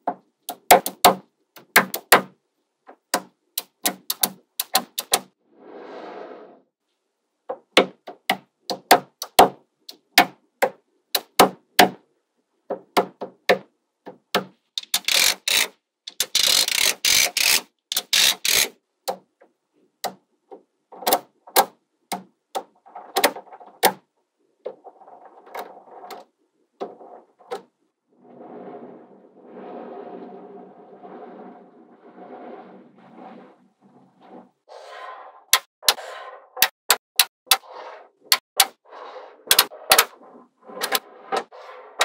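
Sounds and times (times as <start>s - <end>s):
magnetic balls clicking together: 3.1s - 5.3s, 14.8s - 19.2s.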